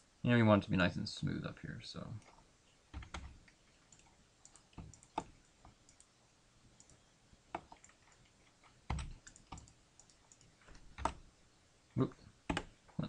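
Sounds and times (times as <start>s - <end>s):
keyboard keys clicking: 3.0s - 3.3s, 3.9s - 5.3s, 8.9s - 11.2s.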